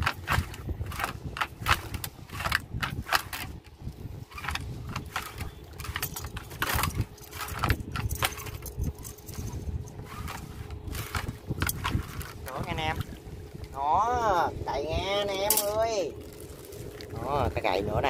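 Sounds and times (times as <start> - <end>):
metallic clinks and knocks: 4.3 - 12.3, 15.5 - 15.8.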